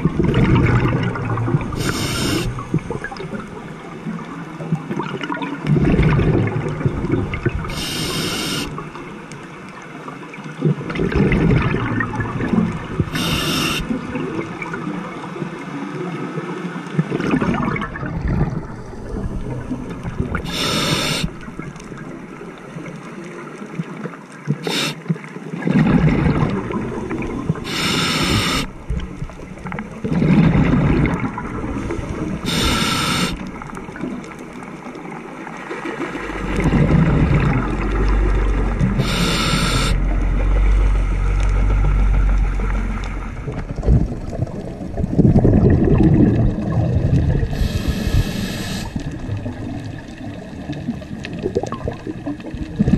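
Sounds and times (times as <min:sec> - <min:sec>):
gurgle of exhaled bubbles: 0:00.0 - 0:09.5, 0:10.5 - 0:15.3, 0:16.9 - 0:52.9
hissing regulator inhalation: 0:01.8 - 0:02.6, 0:07.7 - 0:08.8, 0:13.1 - 0:13.9, 0:20.4 - 0:21.4, 0:24.6 - 0:25.0, 0:27.6 - 0:28.7, 0:32.4 - 0:33.5, 0:38.9 - 0:40.0, 0:47.5 - 0:49.0.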